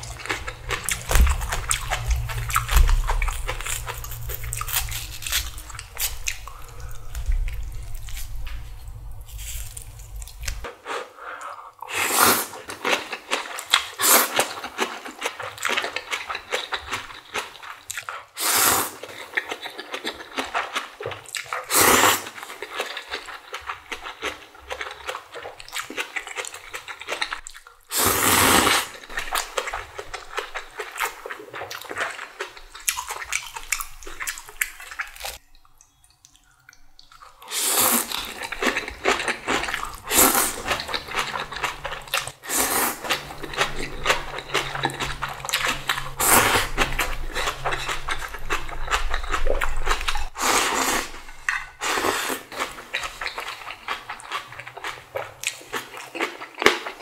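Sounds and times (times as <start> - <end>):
wet chewing and smacking: 0.0 - 10.7, 12.7 - 18.4, 19.0 - 27.9, 29.0 - 50.4, 52.4 - 57.0
slurping noodles: 10.6 - 13.2, 18.4 - 19.1, 21.6 - 22.4, 27.9 - 29.0, 37.4 - 53.5.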